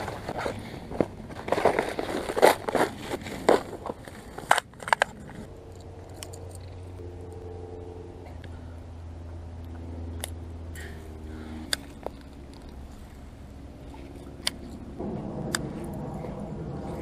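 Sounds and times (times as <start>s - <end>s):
distant motor humming: 5.5s - 17.0s.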